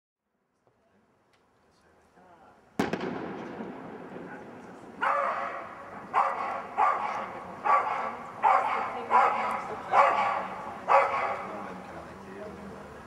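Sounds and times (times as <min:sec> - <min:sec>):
dog barking: 0:05.0 - 0:11.5.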